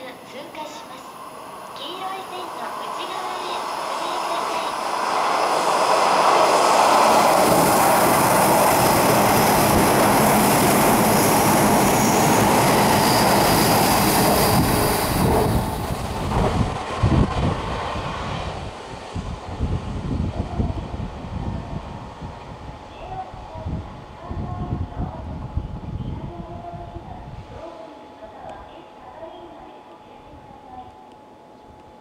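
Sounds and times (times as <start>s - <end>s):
low gusts: 0.0s - 27.7s
train wheels rushing on rail: 0.7s - 24.1s.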